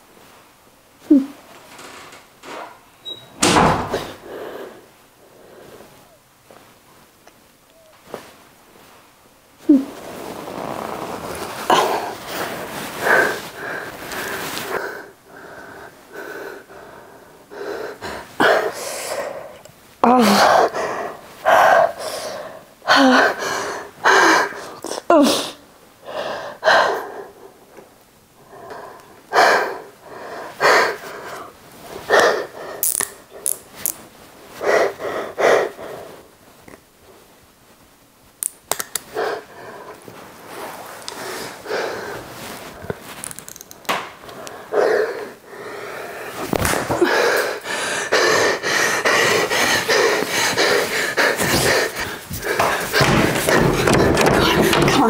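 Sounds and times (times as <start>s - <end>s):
woman gasping for breath: 44.6s - 53.4s.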